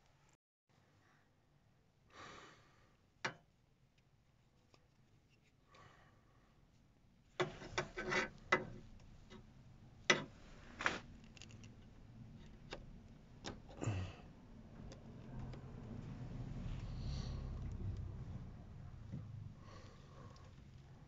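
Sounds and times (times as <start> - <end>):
rustling of hands handling parts: 3.9 - 5.7, 6.7 - 13.8.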